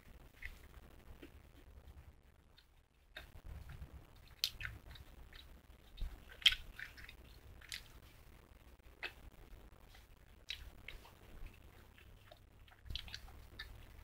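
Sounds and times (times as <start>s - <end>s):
chewing candy with mouth clicks: 4.2s - 8.0s, 9.9s - 14.0s.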